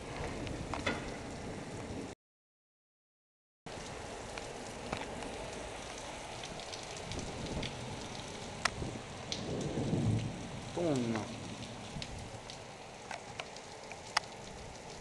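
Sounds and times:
heavy rain pouring: 0.0s - 2.2s, 3.7s - 15.0s
drops ticking on a surface: 10.9s - 15.0s.

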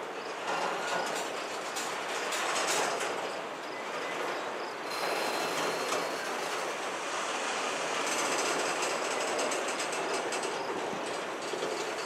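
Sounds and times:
freight train rolling on rails: 0.0s - 12.0s
high thin squeal: 4.9s - 6.8s.

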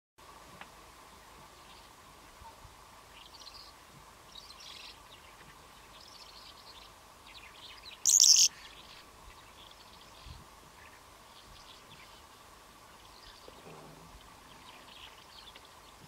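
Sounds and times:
lark singing: 8.0s - 8.5s.

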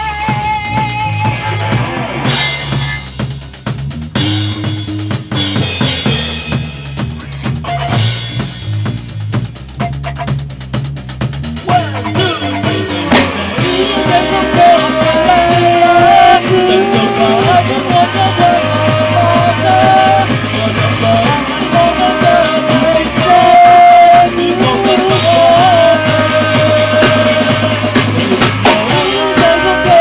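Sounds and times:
drum kit: 0.0s - 30.0s
woman and man singing: 11.7s - 28.0s, 28.6s - 30.0s.

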